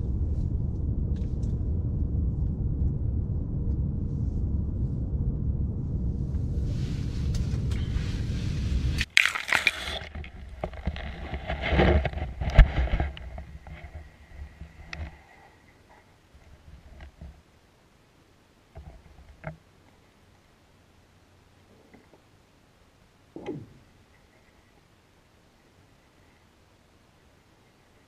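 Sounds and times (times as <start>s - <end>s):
steady low rumble: 0.0s - 21.7s
knocks and scrapes: 6.3s - 17.4s, 18.8s - 19.6s.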